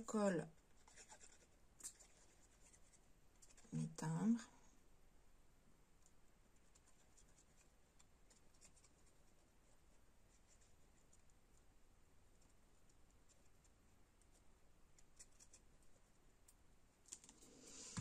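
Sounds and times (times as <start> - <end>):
paper ticks and rustles: 17.1 - 18.0.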